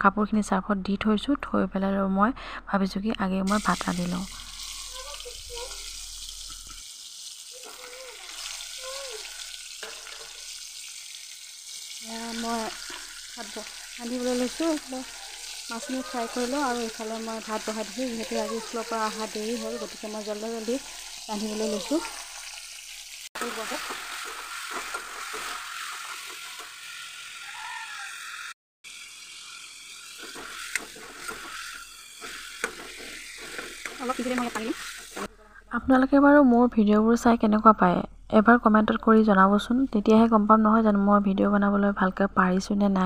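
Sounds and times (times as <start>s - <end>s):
fish sizzling in hot oil: 3.5s - 35.3s
metal ladle scraping a pan: 7.7s - 11.0s, 23.5s - 27.0s, 30.1s - 35.3s.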